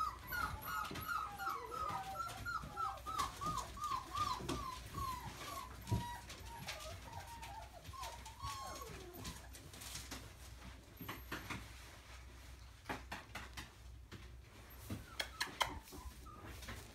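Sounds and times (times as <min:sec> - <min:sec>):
puppy whimpering and whining: 0:00.0 - 0:11.4, 0:14.6 - 0:16.9
clicks and rustling of toys: 0:00.1 - 0:11.9.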